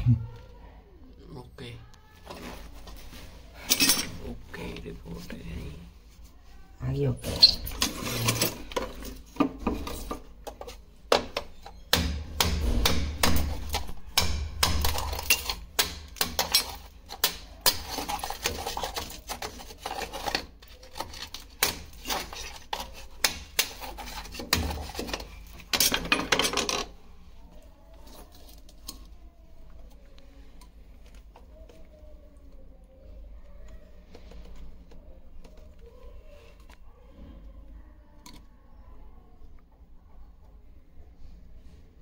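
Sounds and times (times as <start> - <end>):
hard objects clinking and scraping: 7.4 - 11.8, 13.3 - 27.0.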